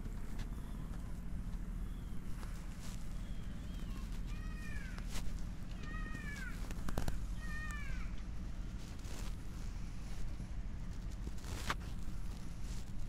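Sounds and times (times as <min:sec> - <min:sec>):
animal calling: 0:05.7 - 0:08.2.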